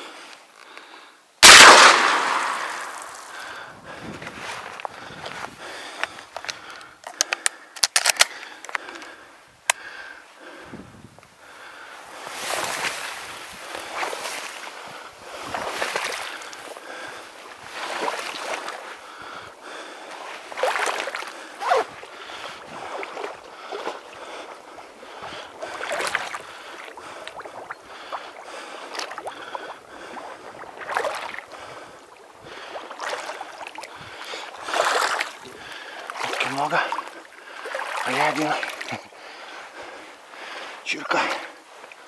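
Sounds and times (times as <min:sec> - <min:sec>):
paddle splashing in water: 0:01.4 - 0:03.6, 0:12.2 - 0:40.6
light water wash: 0:20.1 - 0:39.1.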